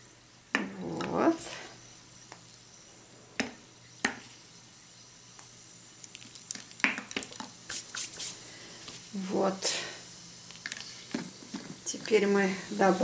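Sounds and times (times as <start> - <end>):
crackling fizz of dissolving tablets: 3.9 - 13.0.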